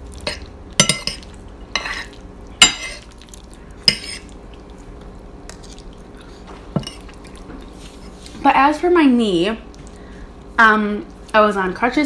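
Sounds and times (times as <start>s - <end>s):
fork scraping on a plate: 1.8s - 3.0s.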